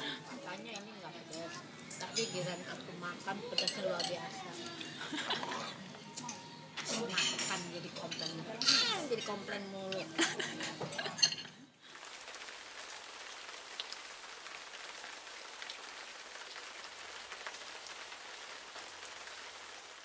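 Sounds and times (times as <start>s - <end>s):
voices at a table: 0.0s - 11.6s
clink at a dining table: 0.8s - 11.6s
steady rain falling: 11.8s - 20.0s.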